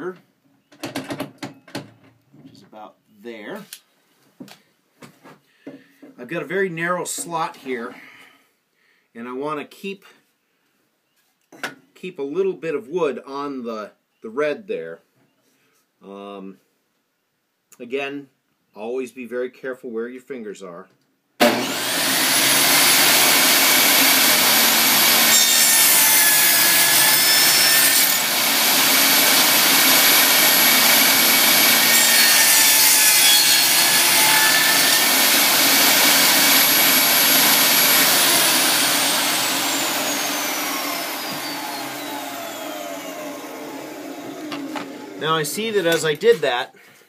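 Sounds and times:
table saw motor whine: 21.4 - 45.2
saw blade cutting wood: 21.4 - 46.4.

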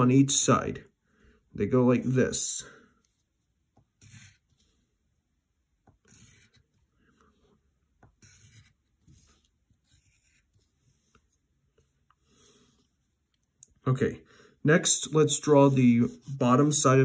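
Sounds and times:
pencil scratching on paper: 3.8 - 4.9, 5.9 - 13.0, 14.8 - 17.0.

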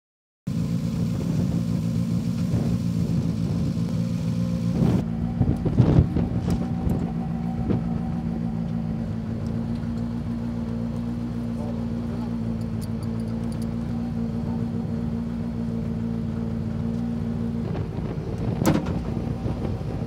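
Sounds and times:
rally car engine idling: 0.5 - 20.0
short knocks and clunks: 18.4 - 19.7.

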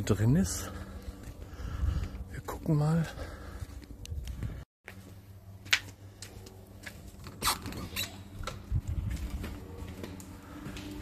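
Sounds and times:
footsteps on gravel: 0.0 - 7.2.

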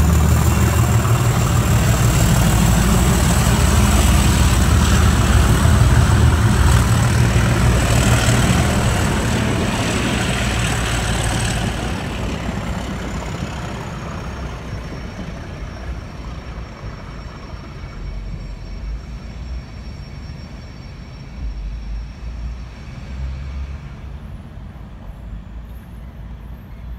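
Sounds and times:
carriages rolling past: 0.0 - 18.7
diesel locomotive engine rumble: 0.0 - 26.9.

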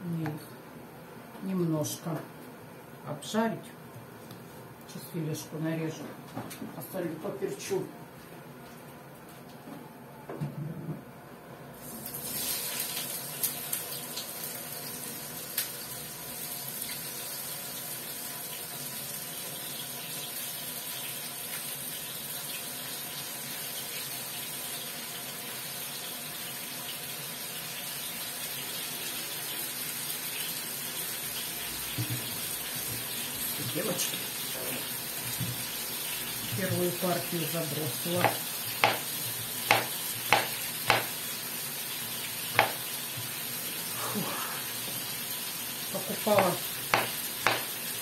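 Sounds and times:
mushrooms sizzling in frying pan: 12.0 - 43.9, 44.7 - 48.0.

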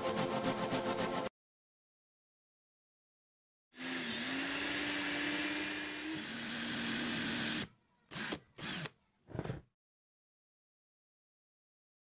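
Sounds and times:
cordless drill motor whine: 3.8 - 9.0.

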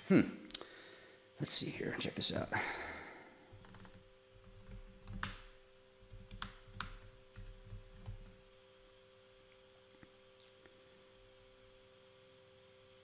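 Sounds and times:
faint steady hum: 0.0 - 13.0
keyboard typing and clicks: 3.6 - 8.4.

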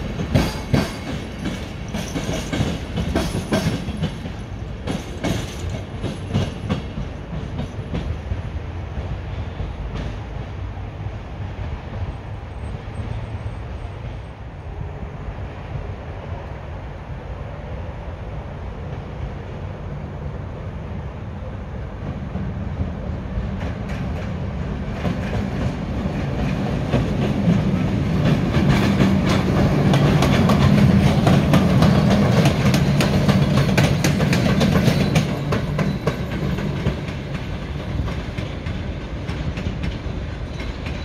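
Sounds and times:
train wheels clacking on rails: 0.0 - 10.6, 22.0 - 41.0.

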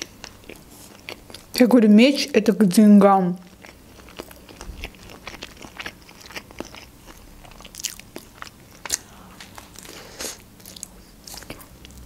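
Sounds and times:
person chewing food: 0.0 - 1.6, 3.4 - 12.0.

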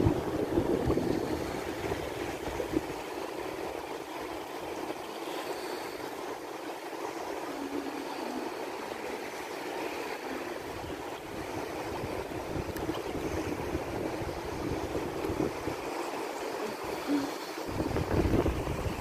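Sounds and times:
wind gusts on microphone: 0.0 - 5.0, 6.0 - 19.0
small waves lapping and splashing: 0.0 - 19.0.

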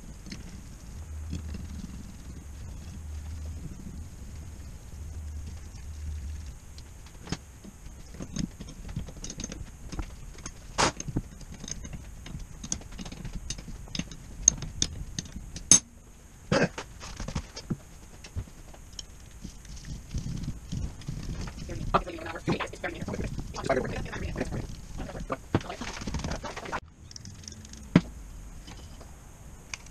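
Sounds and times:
metal parts and tools clinking: 7.0 - 15.9, 18.9 - 28.0.

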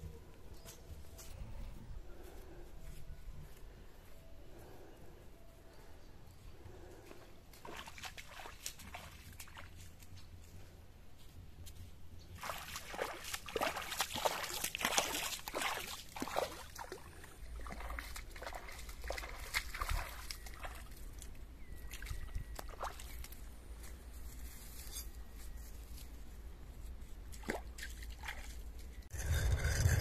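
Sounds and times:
feet splashing through stream: 7.5 - 10.1, 12.4 - 23.4, 27.2 - 29.0.

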